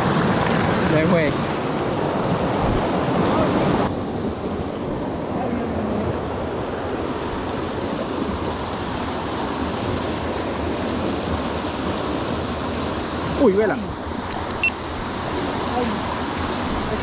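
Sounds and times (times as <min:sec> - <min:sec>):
stream water rushing: 0:00.0 - 0:17.0.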